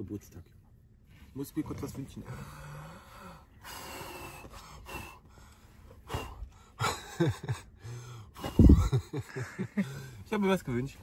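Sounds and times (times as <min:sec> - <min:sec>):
person breathing: 0:02.2 - 0:06.8, 0:07.8 - 0:08.8.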